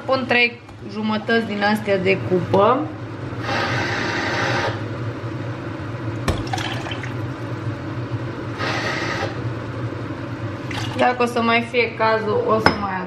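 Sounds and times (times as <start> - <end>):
cooker hood fan humming: 0.0 - 13.0
water pouring into a pot: 6.3 - 7.3.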